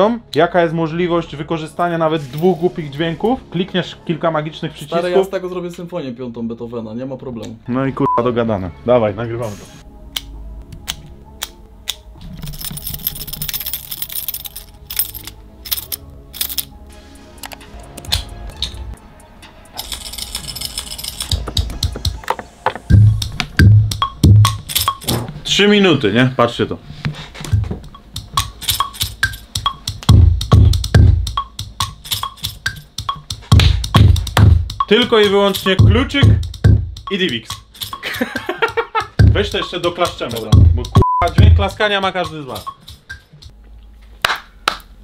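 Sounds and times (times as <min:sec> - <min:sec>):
clicky car key beat: 0:20.2 - 0:25.2, 0:27.4 - 0:43.5
deep kick drum: 0:22.9 - 0:24.6, 0:27.5 - 0:28.4, 0:29.6 - 0:31.8, 0:33.3 - 0:34.9, 0:35.8 - 0:37.1, 0:39.0 - 0:39.6, 0:40.5 - 0:41.8.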